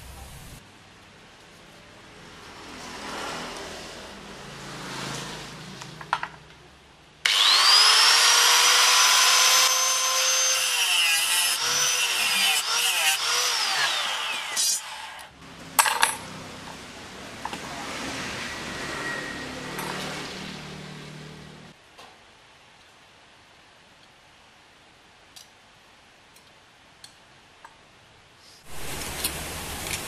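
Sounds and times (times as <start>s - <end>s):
angle grinder cutting metal: 7.2s - 15.3s.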